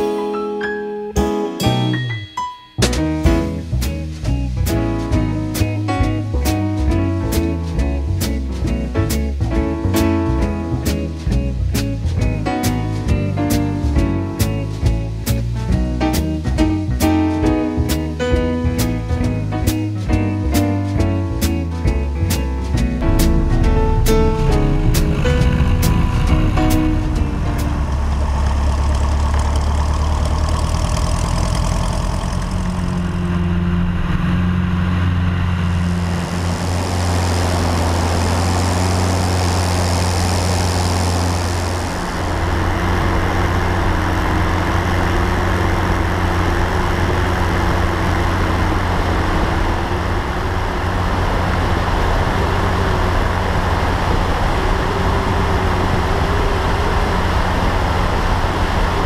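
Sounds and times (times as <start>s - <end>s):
rushing wind: 22.9s - 32.2s, 33.7s - 59.0s
aircraft engine and propeller: 23.0s - 59.0s.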